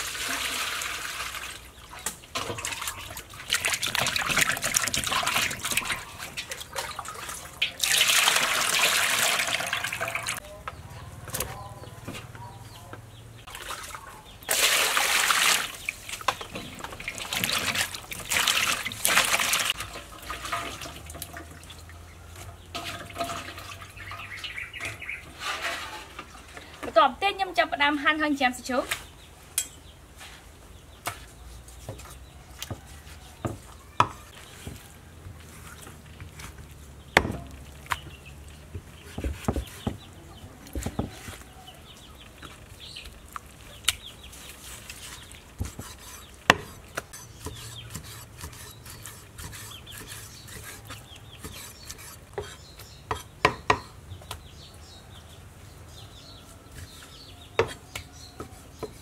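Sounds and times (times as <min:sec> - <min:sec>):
cleaver chopping on wooden block: 0:37.2 - 0:37.5.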